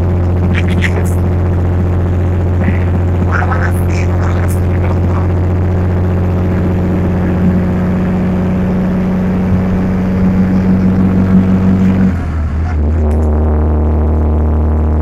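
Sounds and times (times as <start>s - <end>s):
truck diesel engine droning: 0.0s - 15.0s.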